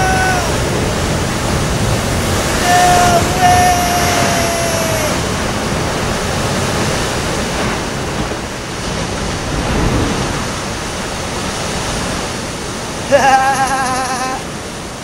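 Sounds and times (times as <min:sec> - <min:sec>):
person yelling: 0:00.0 - 0:01.1, 0:02.4 - 0:05.4, 0:13.1 - 0:14.4
surf and breaking waves: 0:00.0 - 0:15.0.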